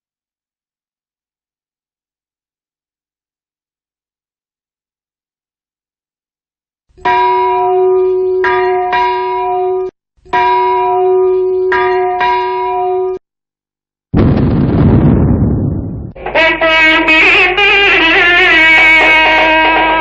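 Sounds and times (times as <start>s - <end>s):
loud crash: 14.2s - 17.0s.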